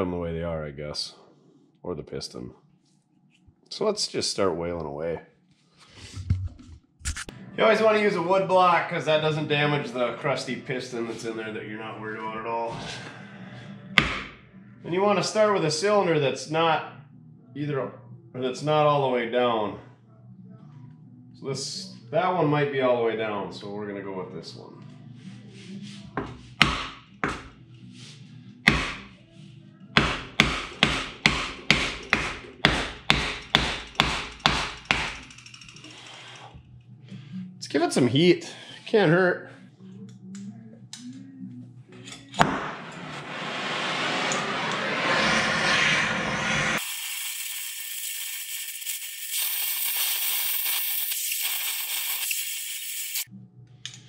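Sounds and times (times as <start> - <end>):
gas torch flame hissing: 43.3 - 53.3.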